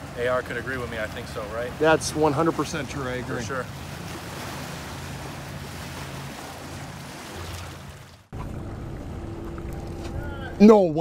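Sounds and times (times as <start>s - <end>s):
steady low hum: 8.3s - 11.0s.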